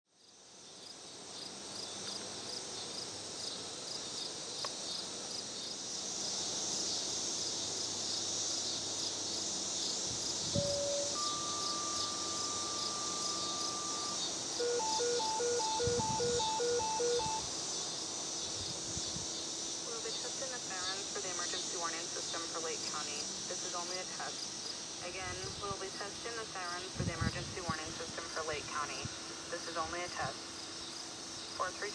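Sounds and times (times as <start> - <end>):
insects chirping: 0.2 - 31.9
pager alert tones: 10.6 - 17.5.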